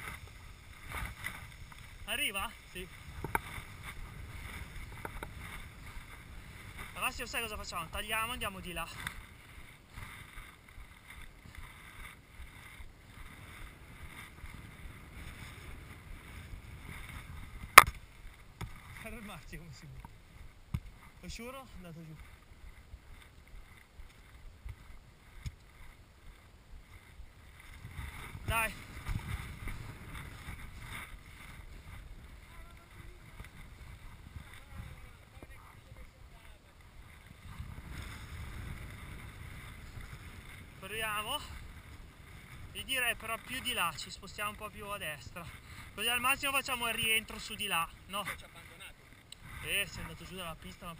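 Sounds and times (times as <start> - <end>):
skis hissing through snow: 0.0 - 17.6
wind rumbling on microphone: 0.0 - 50.9.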